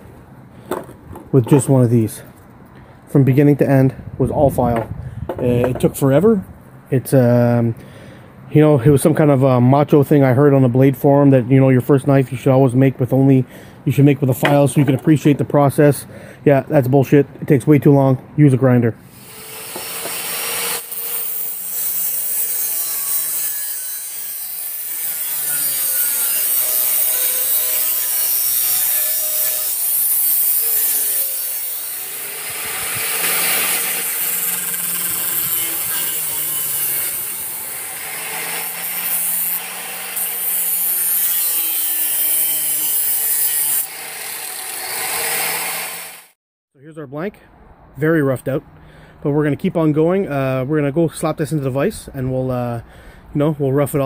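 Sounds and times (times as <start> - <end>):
angle grinder cutting metal: 19.1 - 46.4.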